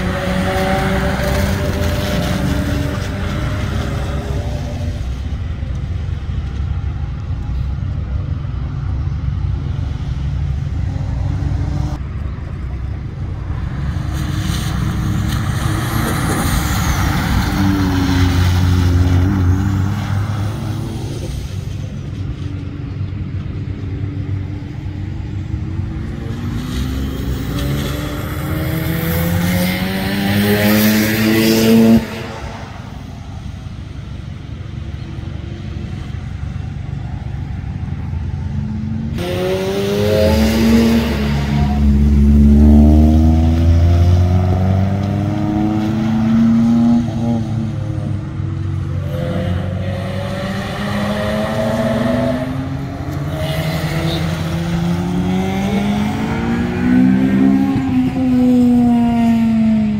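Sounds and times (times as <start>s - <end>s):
tyre noise on wet asphalt: 0.0s - 49.8s
car engines passing: 0.0s - 59.9s
engine revving rising in pitch: 26.5s - 32.7s, 39.2s - 47.7s, 49.0s - 59.7s.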